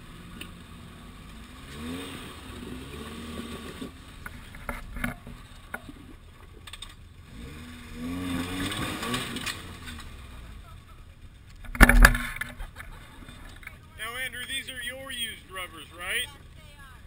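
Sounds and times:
engine revving: 0.0s - 11.0s.

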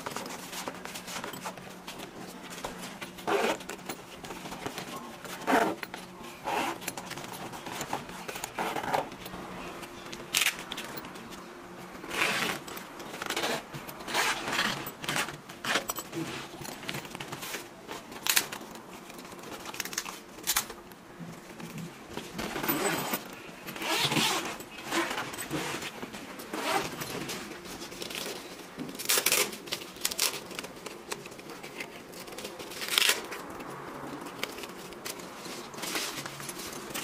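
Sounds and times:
hook-and-loop straps ripping: 3.2s - 3.9s, 10.3s - 10.9s, 29.0s - 33.5s
fabric rustling: 21.4s - 37.0s.

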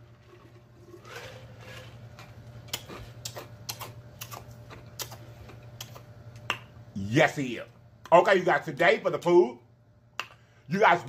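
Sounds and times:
wet mouth clicks: 2.7s - 5.2s, 5.8s - 6.7s.

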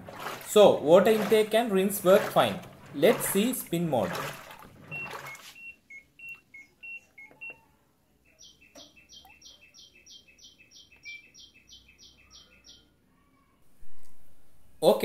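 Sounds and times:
washing machine panel beeps: 4.8s - 7.7s, 11.0s - 11.4s.

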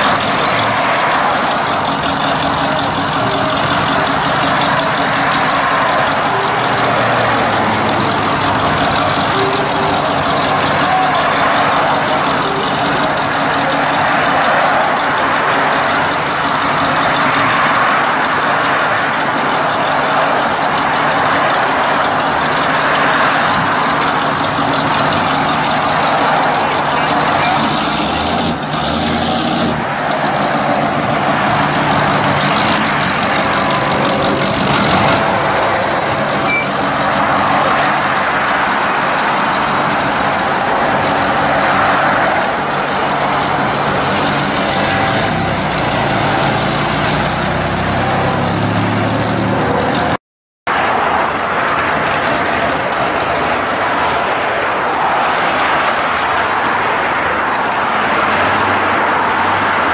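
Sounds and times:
hot rod engines pulling away: 0.0s - 59.9s
road traffic passing: 0.0s - 59.9s.

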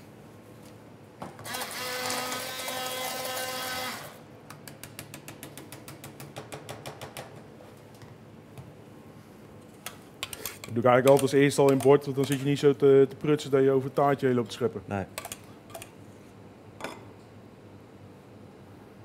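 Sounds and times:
immersion blender whine: 1.4s - 4.2s.

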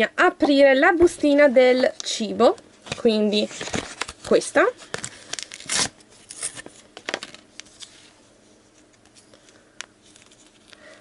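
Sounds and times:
plastic sachet crinkling: 2.9s - 7.9s.

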